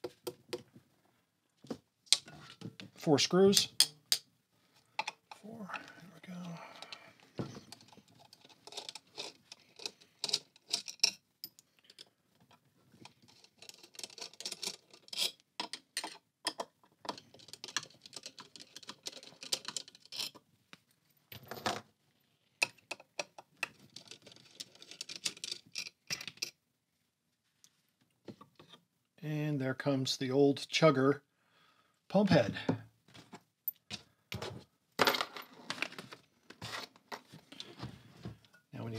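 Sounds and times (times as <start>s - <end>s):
small metal parts clicking: 7.7s - 12.1s, 13.1s - 20.4s.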